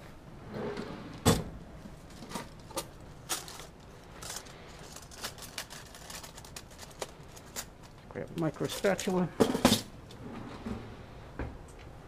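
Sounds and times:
pens and tools clinking: 2.1s - 9.8s.

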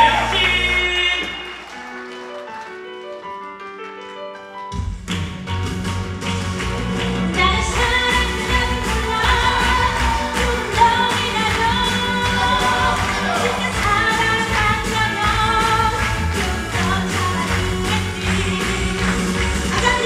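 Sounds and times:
upbeat pop song: 7.0s - 20.0s
person singing: 7.4s - 20.0s.

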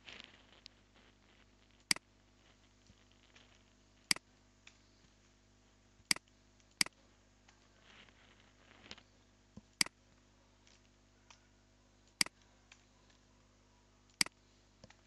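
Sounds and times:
faint rustle: 0.0s - 5.8s, 7.0s - 9.3s.

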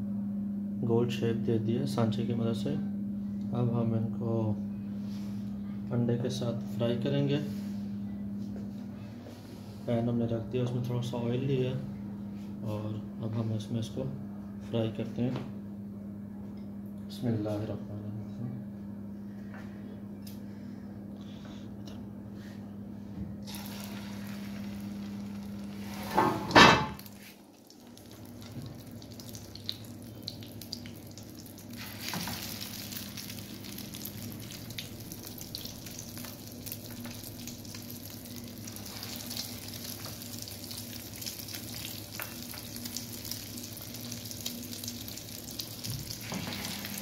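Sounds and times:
food sizzling in hot oil: 23.5s - 47.0s.

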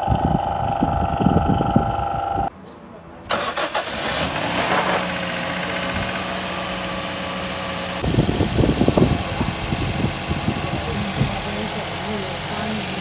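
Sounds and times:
engine starter cranking: 3.3s - 5.2s
car engine idling: 3.3s - 13.0s.

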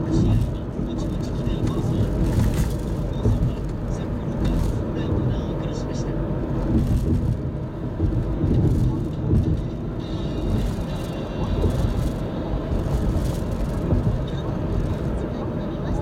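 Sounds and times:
car cabin road rumble: 0.0s - 16.0s.

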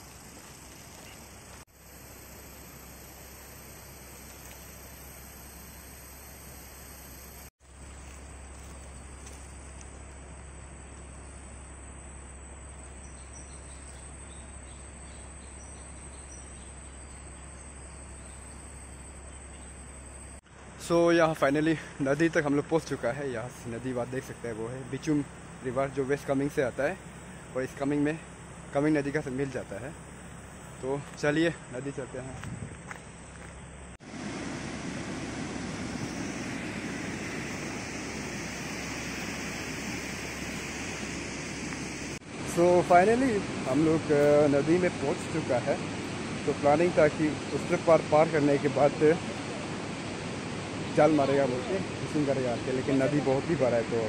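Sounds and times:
shrill insect chorus: 0.0s - 54.0s
fast river rushing: 34.0s - 54.0s.

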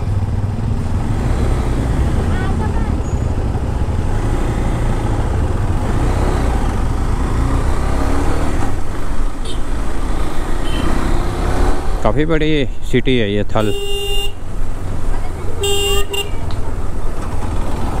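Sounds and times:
motorcycle engine accelerating: 0.0s - 12.2s.

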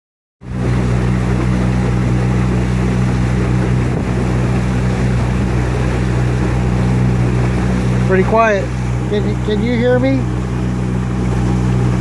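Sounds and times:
outboard motor running: 0.4s - 12.0s
water rushing along hull: 0.4s - 12.0s.

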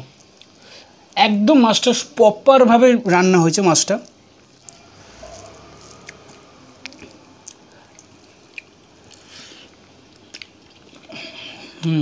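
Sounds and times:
chewing: 0.0s - 1.2s, 3.9s - 12.0s
fingers squishing rice: 3.5s - 11.1s.

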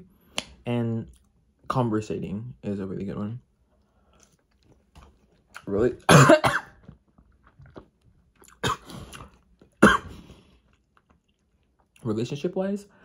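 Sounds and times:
person coughing: 6.1s - 6.8s, 8.6s - 9.2s, 9.8s - 10.3s.

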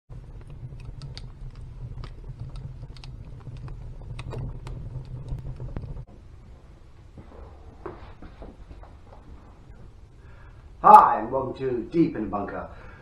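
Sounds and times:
logs crackling and popping: 0.1s - 6.5s
low rumble of fire: 0.1s - 13.0s.

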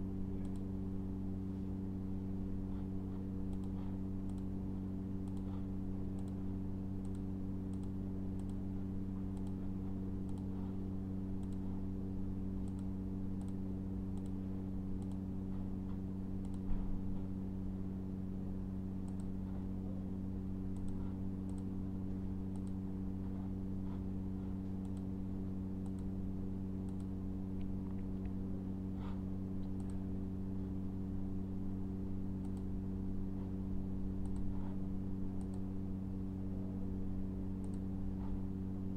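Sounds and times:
steady low hum: 0.0s - 38.9s
computer mouse clicks: 0.4s - 0.7s, 3.5s - 4.5s, 5.2s - 6.4s, 7.0s - 8.6s, 9.3s - 9.6s, 10.2s - 10.6s, 11.4s - 11.7s, 12.6s - 14.4s, 15.0s - 15.2s, 15.9s - 16.7s, 19.0s - 19.3s, 20.7s - 21.7s, 22.5s - 22.8s, 24.8s - 25.1s, 25.8s - 26.1s, 26.8s - 28.4s, 29.6s - 30.0s, 32.4s - 32.7s, 34.2s - 34.8s, 35.4s - 35.6s, 37.6s - 38.4s.

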